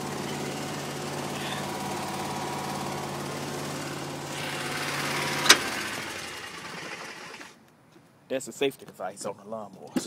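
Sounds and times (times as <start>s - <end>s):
lawn mower engine idling: 0.0s - 7.6s.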